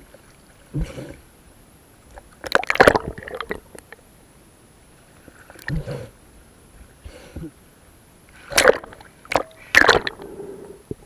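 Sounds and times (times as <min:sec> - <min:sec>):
water sloshing and splashing: 0:02.1 - 0:04.0, 0:08.4 - 0:10.2.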